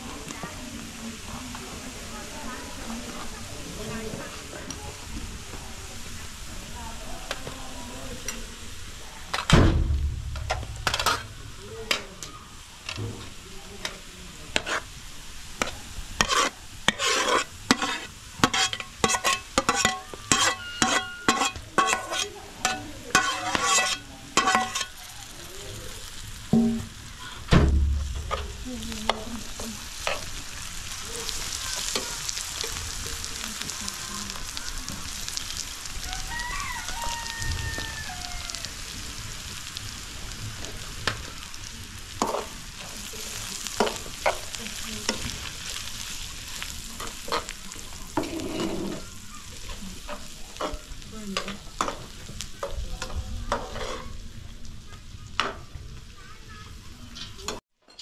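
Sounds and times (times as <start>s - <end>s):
food sizzling in a frying pan: 0.0s - 57.6s
metal spoon scraping a pan: 10.4s - 12.0s, 13.8s - 15.0s, 15.6s - 25.1s, 28.1s - 30.5s, 47.0s - 52.1s, 53.0s - 54.2s.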